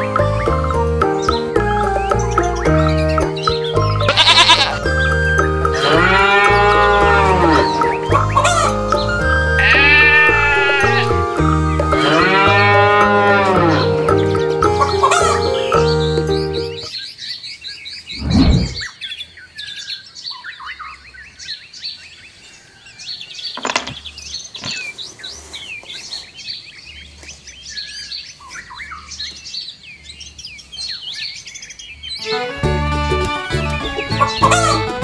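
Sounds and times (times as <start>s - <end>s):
small birds chirping: 0.0s - 32.5s.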